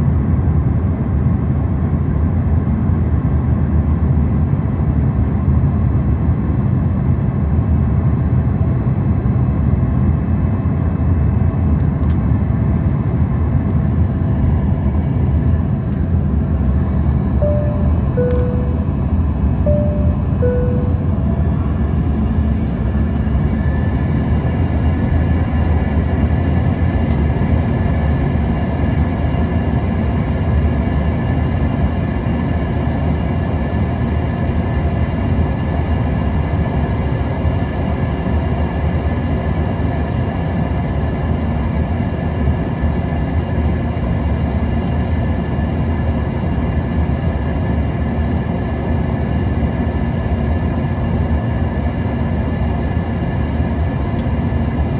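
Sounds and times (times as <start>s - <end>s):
jet engine cabin rumble and whine: 0.0s - 54.9s
high whine tones falling in pitch: 16.9s - 24.5s.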